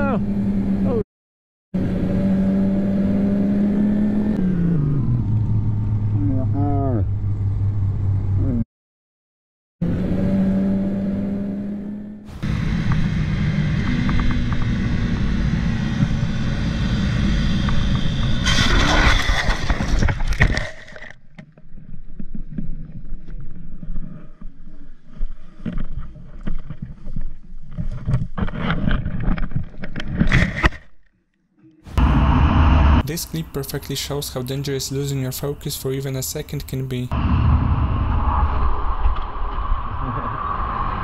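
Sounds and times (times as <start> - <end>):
motorcycle scraping along ground: 10.4 - 21.1
motorcycle engine running: 12.0 - 18.4
wind noise: 37.1 - 41.0.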